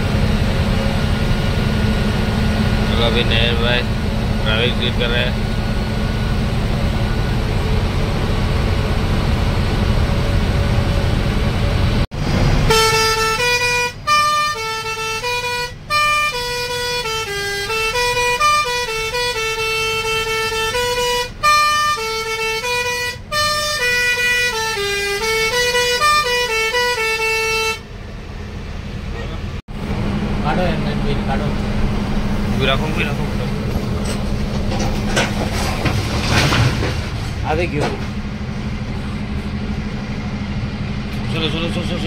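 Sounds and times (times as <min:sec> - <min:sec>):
bus engine and road rumble: 0:00.0 - 0:42.0
horn-like tune: 0:12.7 - 0:27.9.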